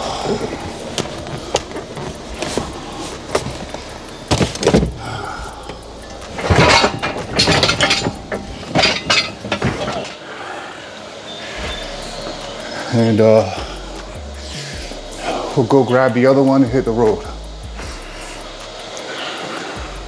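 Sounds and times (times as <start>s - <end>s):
heavy metal clunks and scraping: 5.7s - 10.2s.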